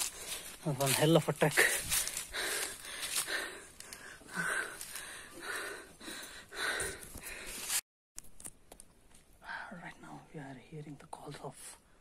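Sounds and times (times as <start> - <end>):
person panting hard: 0.0 - 0.6, 1.6 - 7.8.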